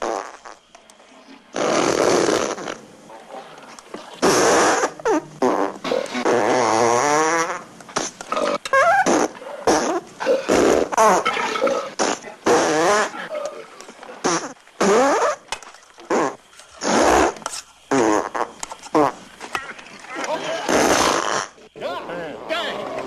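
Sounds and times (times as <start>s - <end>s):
loud farts: 0.0s - 0.6s, 1.5s - 2.8s, 4.1s - 13.3s, 14.2s - 15.5s, 16.1s - 19.3s, 20.5s - 21.6s.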